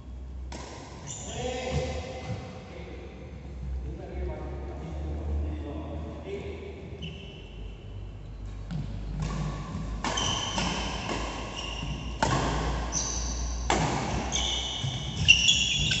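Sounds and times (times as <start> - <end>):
rackets hitting shuttlecock: 0.5 - 1.1, 8.6 - 16.0
sneakers squeaking on court: 1.0 - 2.5, 6.9 - 7.7, 8.4 - 16.0.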